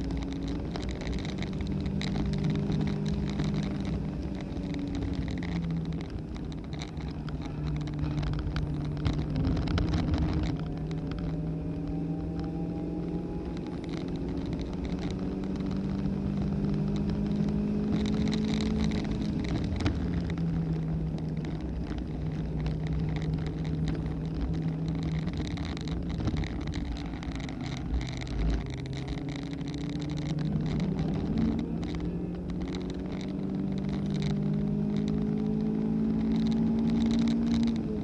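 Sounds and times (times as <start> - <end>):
car engine running hard: 0.0 - 38.0
road and wind noise: 0.0 - 38.0.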